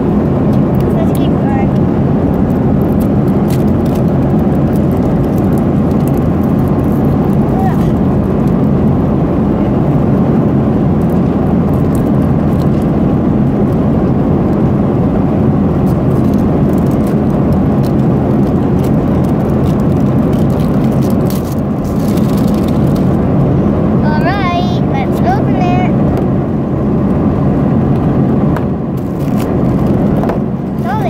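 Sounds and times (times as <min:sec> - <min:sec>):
airliner cabin roar: 0:00.0 - 0:31.0
plastic packaging crackling: 0:02.3 - 0:08.6, 0:15.8 - 0:23.2, 0:29.0 - 0:31.0.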